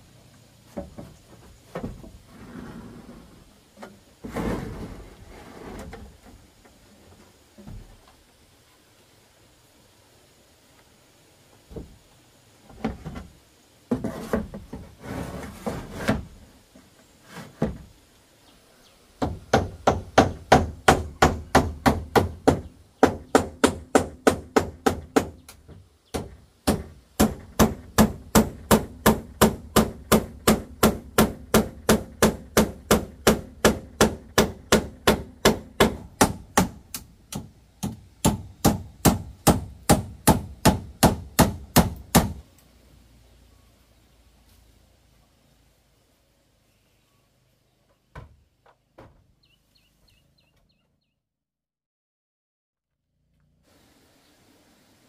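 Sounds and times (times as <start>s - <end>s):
hammer striking roofing nails: 19.2s - 25.4s, 26.2s - 42.4s.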